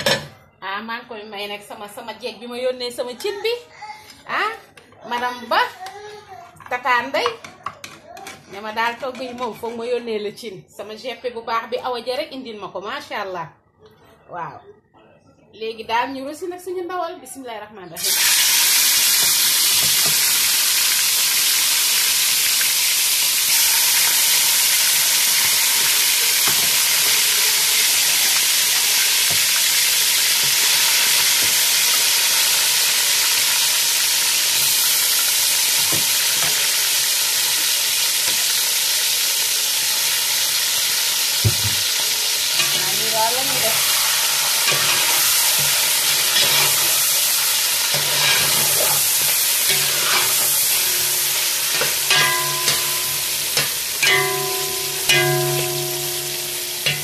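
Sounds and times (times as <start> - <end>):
meat sizzling in hot oil: 18.0 - 57.0
knock: 41.4 - 41.8.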